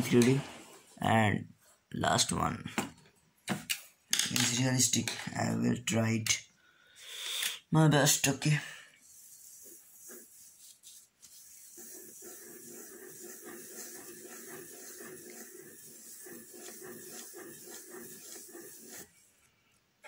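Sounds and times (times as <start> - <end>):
pencil scratching on paper: 9.0 - 19.3.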